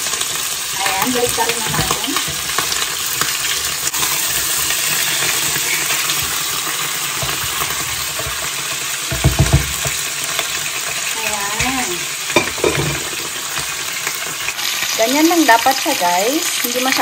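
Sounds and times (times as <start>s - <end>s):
oil sizzling in a pan: 0.0s - 17.0s
spatula scraping pan: 0.7s - 10.5s
utensils knocking: 0.9s - 2.7s, 9.1s - 10.0s, 11.6s - 13.1s.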